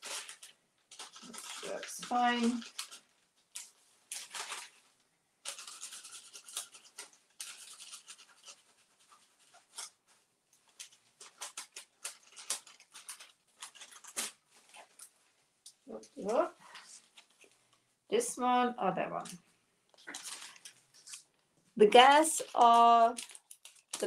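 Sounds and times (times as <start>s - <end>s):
paper rustling: 0.0s - 17.8s, 19.2s - 24.0s
paintbrush scratching paper: 5.5s - 10.1s.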